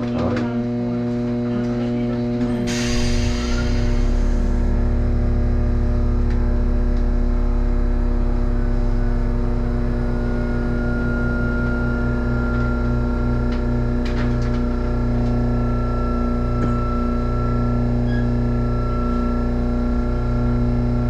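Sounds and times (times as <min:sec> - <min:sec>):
machinery hum and drone: 0:00.0 - 0:21.0
low pulsing: 0:01.6 - 0:21.0.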